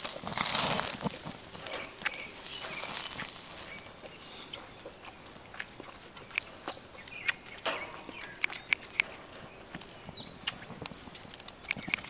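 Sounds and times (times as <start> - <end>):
person chewing: 0.0 - 12.0
soft rustle: 0.0 - 12.0.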